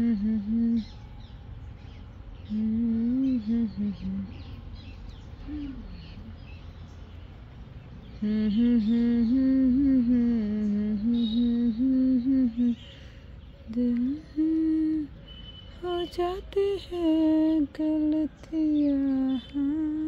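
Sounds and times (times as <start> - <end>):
woman humming: 0.0 - 1.0, 2.5 - 4.5, 5.4 - 6.4, 8.2 - 12.8, 13.7 - 15.1.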